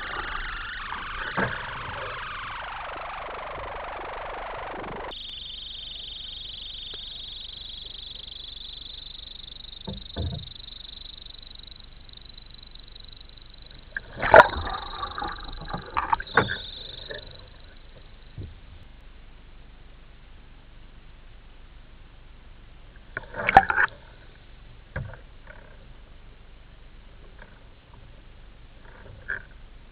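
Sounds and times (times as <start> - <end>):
underwater gurgling and bubbling: 0.0 - 5.2, 13.7 - 18.0
steady high hiss: 0.0 - 28.9.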